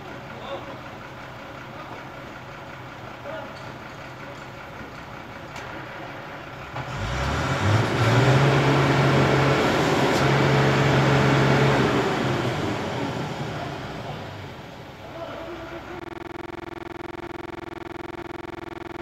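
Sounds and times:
engine revving hard: 6.9s - 12.8s.

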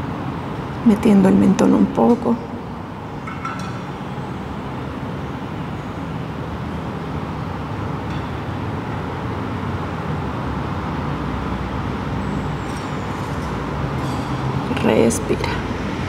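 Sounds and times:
low rumble of road traffic: 0.0s - 16.0s.

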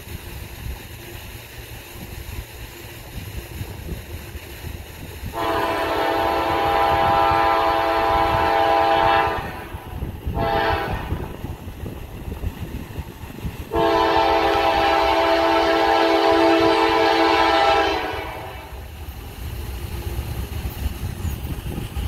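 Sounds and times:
locomotive air horn blasts: 5.3s - 11.3s, 13.7s - 18.9s.

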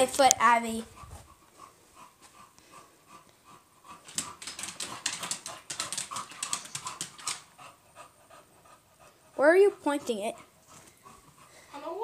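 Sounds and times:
dog claws clicking on wooden floor: 4.0s - 7.6s.

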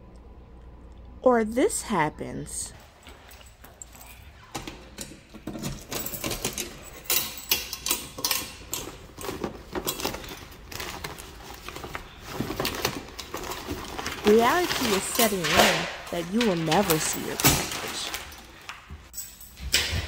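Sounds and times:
paper mail rustling: 9.2s - 18.7s.

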